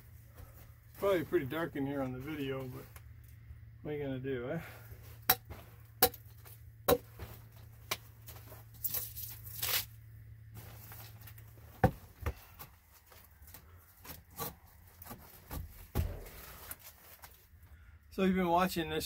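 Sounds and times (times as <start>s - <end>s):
rustling scrape: 10.5s - 11.7s, 16.2s - 17.5s.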